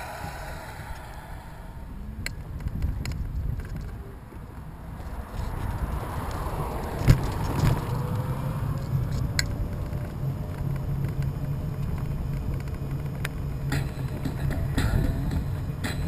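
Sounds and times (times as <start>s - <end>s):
car passing: 0.0s - 2.4s, 4.1s - 12.4s
wind rumble on microphone: 0.0s - 16.0s.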